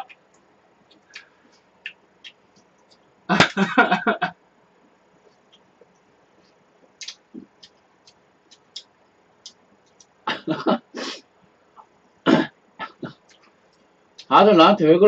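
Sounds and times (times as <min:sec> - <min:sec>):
lip and tongue smacks: 0:06.9 - 0:10.2.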